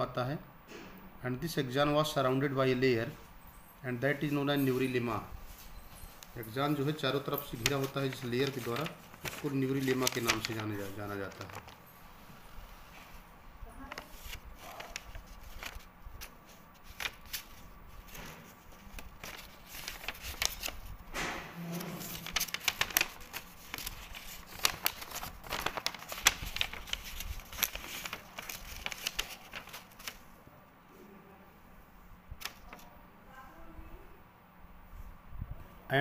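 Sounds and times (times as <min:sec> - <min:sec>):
paper rustling: 0:04.2 - 0:21.1, 0:21.7 - 0:30.3, 0:32.4 - 0:32.9.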